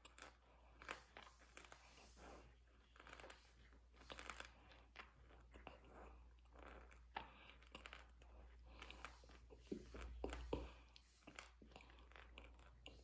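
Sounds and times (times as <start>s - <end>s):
mouth chewing crunchy food: 2.8s - 13.0s.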